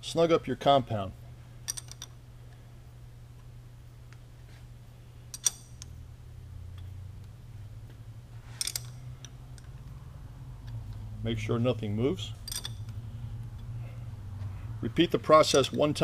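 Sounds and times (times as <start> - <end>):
steady low hum: 0.0 - 16.0
metallic clicks of lathe parts: 1.7 - 2.1, 5.3 - 5.9, 8.6 - 9.8, 12.4 - 13.7.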